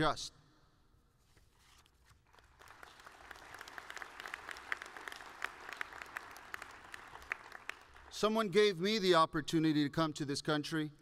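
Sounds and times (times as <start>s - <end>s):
audience applauding: 2.3s - 8.3s.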